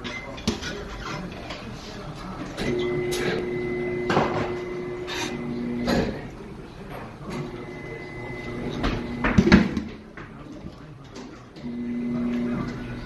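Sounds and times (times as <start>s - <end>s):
turntable motor humming: 2.6s - 6.6s, 7.2s - 9.8s, 11.6s - 13.0s.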